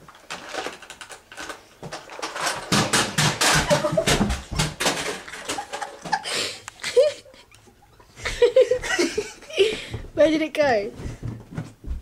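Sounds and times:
plastic toy bouncing down stairs: 0:00.0 - 0:06.2.

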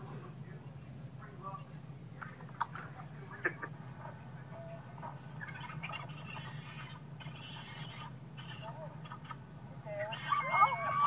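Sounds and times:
steady low hum: 0:00.0 - 0:11.0
faint bird chirps: 0:05.3 - 0:11.0
birds screeching harshly: 0:05.4 - 0:11.0.

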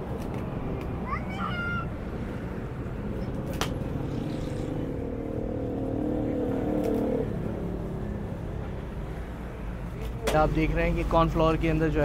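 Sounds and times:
steady low rumble: 0:01.9 - 0:08.3
vehicle engine revving: 0:03.8 - 0:08.9.

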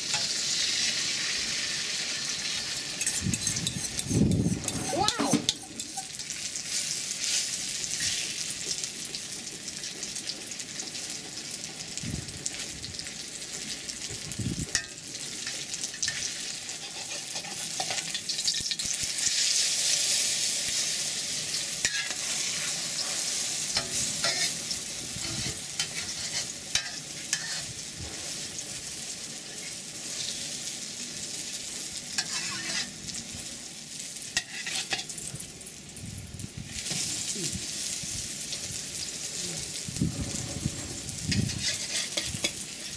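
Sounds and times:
omelette sizzling in oil: 0:00.0 - 0:42.9
metal spatula scraping wok: 0:02.1 - 0:08.6, 0:14.7 - 0:28.6, 0:31.8 - 0:33.0, 0:34.3 - 0:35.2, 0:40.0 - 0:42.9.

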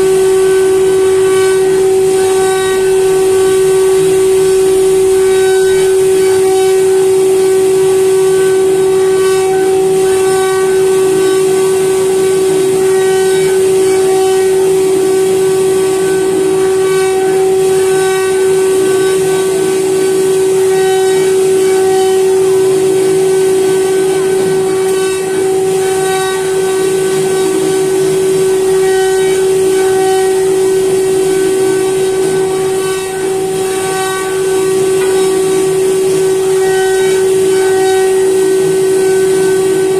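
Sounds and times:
router spindle whine: 0:00.0 - 0:39.9.

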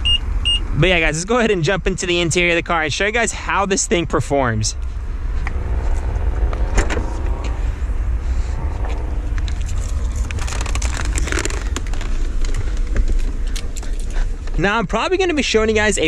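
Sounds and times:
steady low rumble: 0:00.0 - 0:16.0
rustling: 0:04.8 - 0:14.6.

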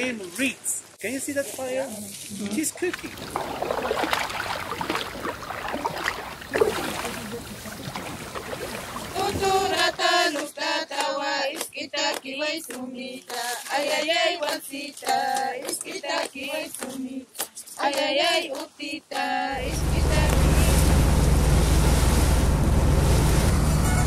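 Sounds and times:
rushing splashing noise: 0:02.9 - 0:09.6, 0:19.6 - 0:24.0
high voices singing together: 0:09.0 - 0:20.8.

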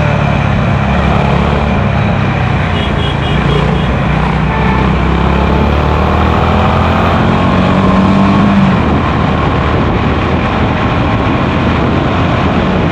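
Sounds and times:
motorcycle engine running: 0:00.0 - 0:05.8
wind rush on microphone: 0:00.0 - 0:12.9.

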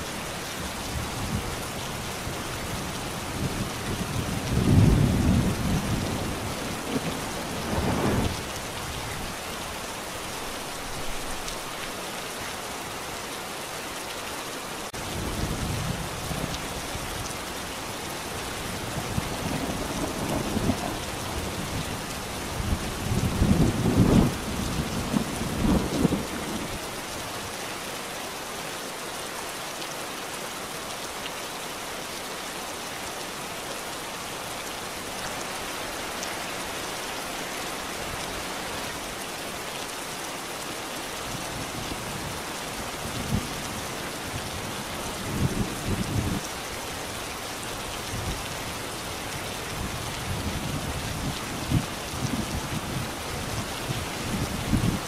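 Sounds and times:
steady rain: 0:00.0 - 0:55.0
rolling thunder: 0:04.4 - 0:08.6, 0:19.0 - 0:22.0.

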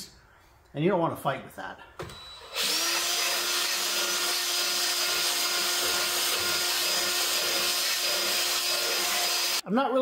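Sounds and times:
drill motor whine: 0:02.1 - 0:09.6.

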